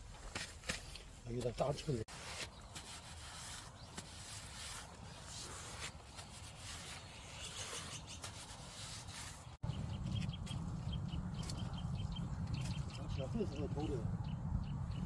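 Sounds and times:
bird chirping: 9.4 - 15.0.

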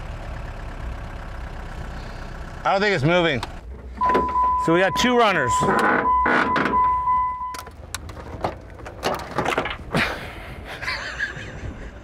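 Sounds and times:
steady high beep: 4.0 - 7.6.

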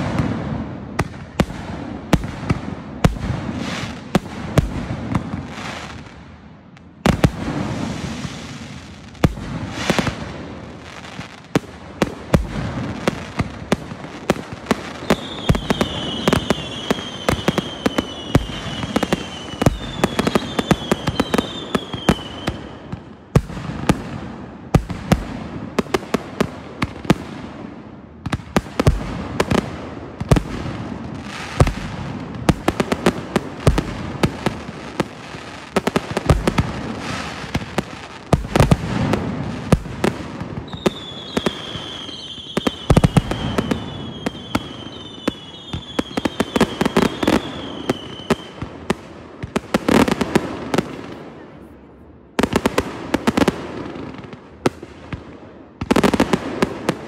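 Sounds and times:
fireworks bangs and crackling: 0.0 - 57.0
firework whistles falling in pitch: 15.0 - 22.6, 40.7 - 48.5.

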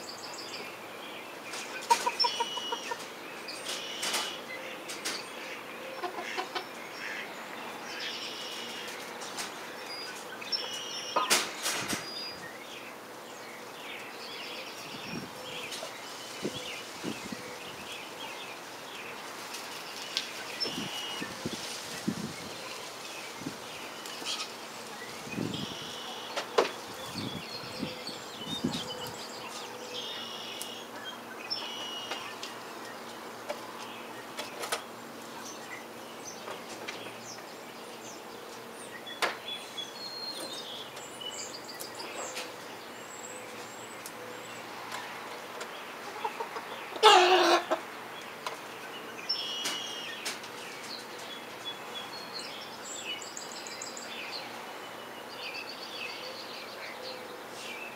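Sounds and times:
chickens clucking: 1.5 - 12.0, 43.4 - 48.8
young rooster trying to crow: 47.0 - 47.8.

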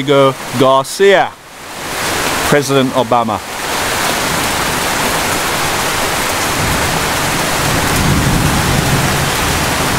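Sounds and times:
heavy rain falling: 0.0 - 9.9
low thunder rumble: 6.5 - 9.9.

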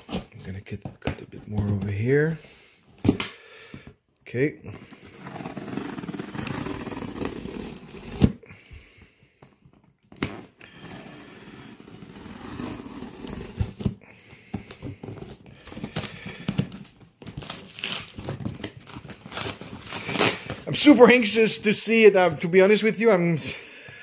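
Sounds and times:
knife cutting through packing tape: 17.4 - 20.6.

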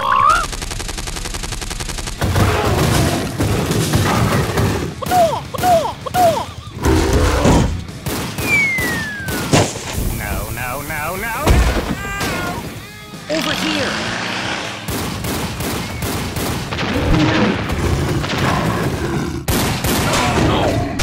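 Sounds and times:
cartoon machine-gun rattle: 0.2 - 2.7
cartoon shots and booms: 0.2 - 12.4, 14.9 - 18.9
falling whistle: 8.4 - 9.6.

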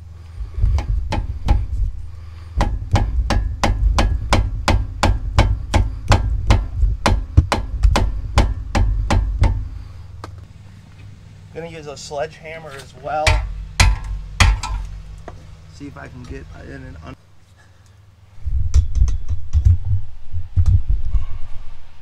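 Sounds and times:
hammer striking steel: 2.6 - 9.8, 13.2 - 15.0.

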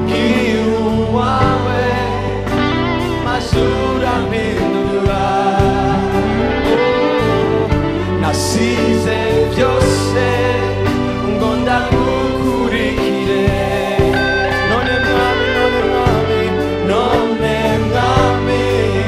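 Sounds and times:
people singing: 0.0 - 19.0
live band playing: 14.0 - 17.6.

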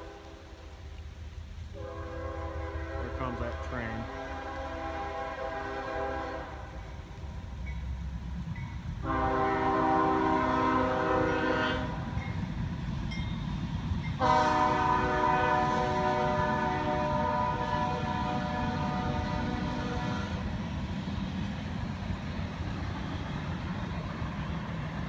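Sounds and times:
train air horn blasts: 0.0 - 0.7, 1.7 - 6.9, 9.0 - 12.2, 14.2 - 20.6
train rumbling: 0.0 - 25.0.

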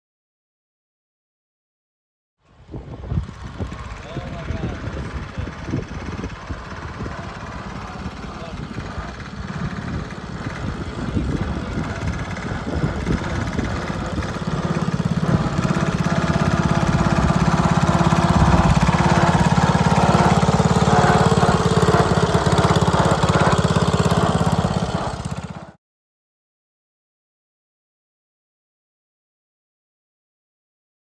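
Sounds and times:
garden tractor engine: 2.4 - 25.8.

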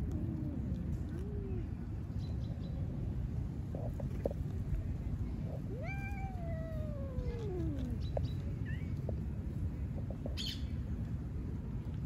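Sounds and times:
low background rumble: 0.0 - 12.0
cat meowing: 5.7 - 8.1.

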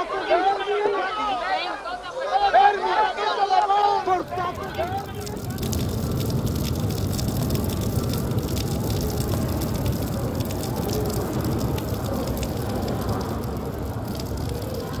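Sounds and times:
rain on stone paving: 3.6 - 15.0.

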